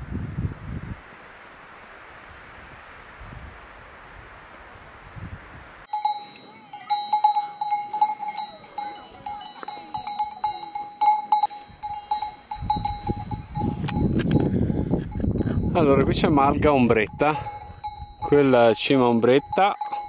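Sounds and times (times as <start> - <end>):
cowbells clanking: 5.9 - 20.0.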